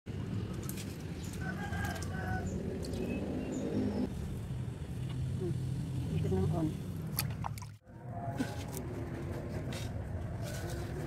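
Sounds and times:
birds chirping: 0.1s - 4.1s.

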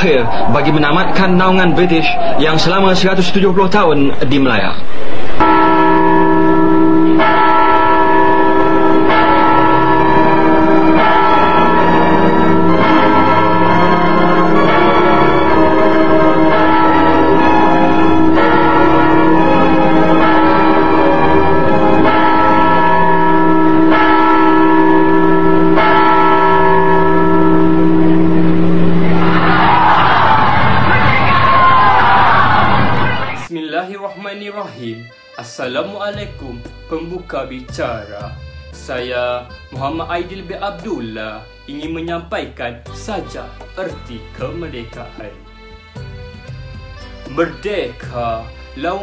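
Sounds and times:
crowd shouting: 0.0s - 3.0s, 29.0s - 33.5s
clock tower bells tolling: 5.4s - 31.4s, 34.1s - 49.0s.

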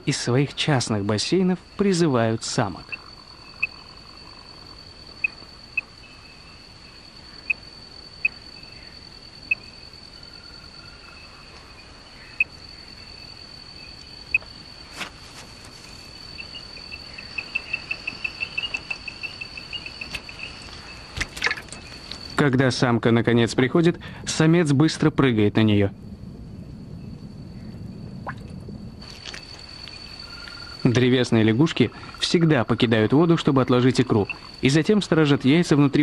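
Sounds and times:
tree frogs chirping: 0.0s - 23.8s, 26.5s - 36.0s
high insect trill: 0.0s - 36.0s.

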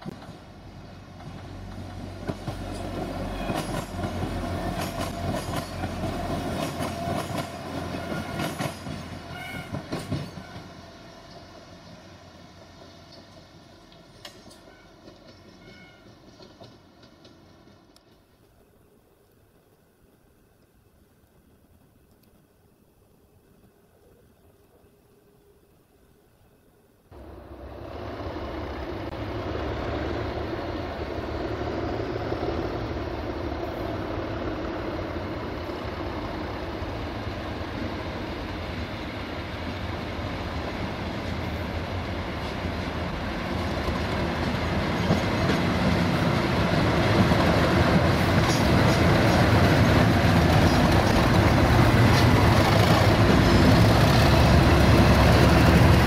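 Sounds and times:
diesel locomotive engines running: 0.0s - 18.6s, 27.2s - 56.0s.

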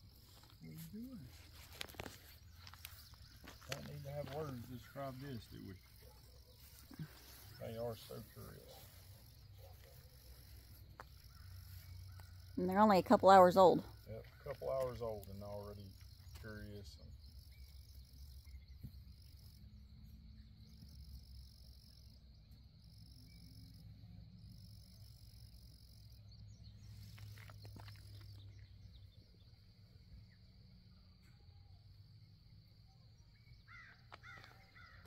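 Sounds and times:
bird chirping: 0.0s - 21.9s
crickets and insects trilling: 0.0s - 35.0s.

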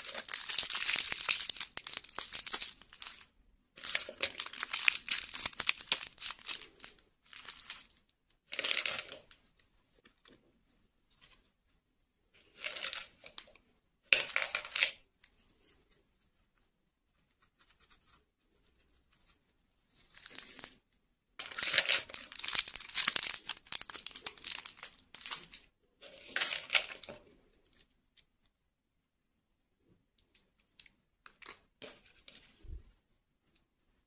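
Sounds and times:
plastic packaging crinkling and tearing: 0.0s - 8.0s, 21.5s - 25.7s.

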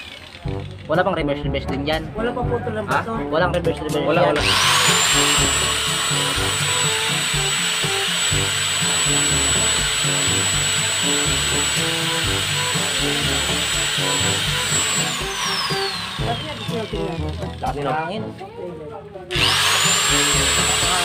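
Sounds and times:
angle grinder whining: 0.0s - 0.9s, 4.3s - 18.0s, 19.3s - 21.0s
background music: 0.4s - 21.0s.

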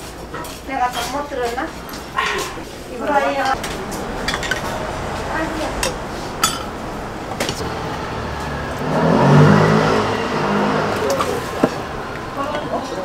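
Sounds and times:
low rumble: 3.6s - 13.0s.

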